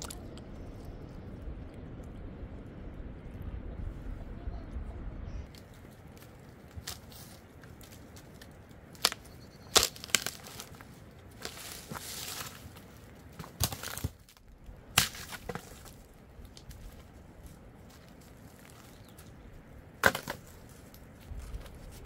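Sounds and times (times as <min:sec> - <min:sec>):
firewood snapping and crunching: 0:05.5 - 0:19.4, 0:20.0 - 0:22.0.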